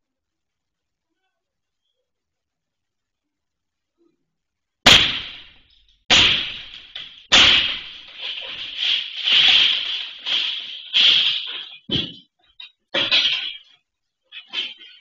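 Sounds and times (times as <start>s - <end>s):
glass crashing and rattling: 4.9s - 15.0s.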